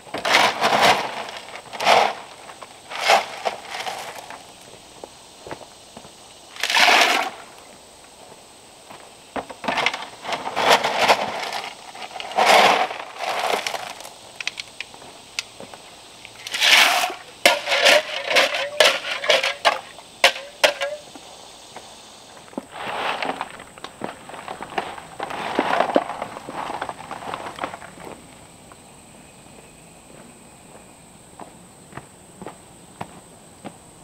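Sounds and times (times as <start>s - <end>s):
shovel scraping dirt in wheelbarrow: 0.1s - 4.5s, 6.6s - 7.5s, 9.6s - 14.2s, 16.4s - 21.1s, 22.6s - 27.9s.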